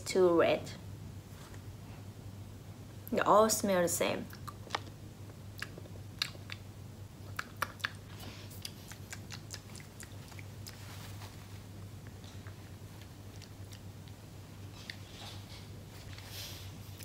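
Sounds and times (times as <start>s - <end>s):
steady low hum: 0.0s - 17.0s
mouth clicks and chewing: 4.3s - 5.0s, 5.6s - 11.1s, 12.0s - 15.6s
paper tissue rustling: 10.8s - 11.8s.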